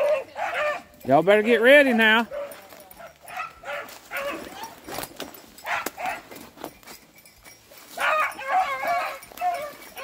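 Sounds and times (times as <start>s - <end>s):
dogs baying: 0.0s - 1.0s, 1.7s - 6.5s, 7.8s - 10.0s.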